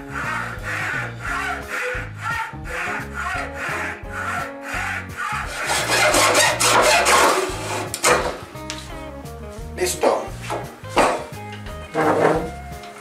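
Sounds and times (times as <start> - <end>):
hacksaw cutting wood: 0.0 - 8.5.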